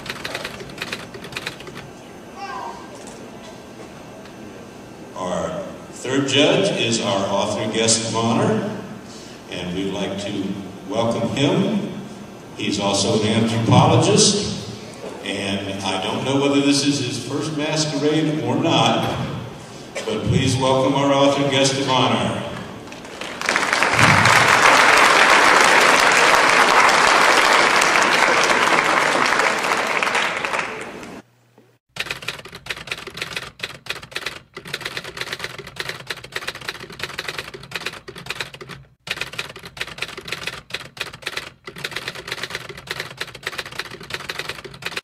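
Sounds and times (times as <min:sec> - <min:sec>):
audience applauding: 0:22.8 - 0:31.2
typewriter key clicks: 0:32.0 - 0:45.0.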